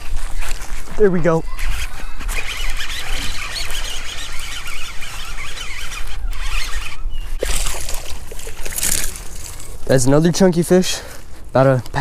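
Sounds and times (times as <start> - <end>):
fishing reel whirring: 1.6 - 9.9.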